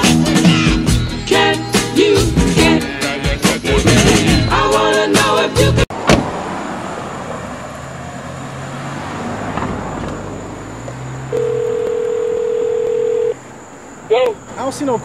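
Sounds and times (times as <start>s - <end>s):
low outdoor background hum: 7.0s - 15.0s
phone ringback tone: 11.3s - 13.4s.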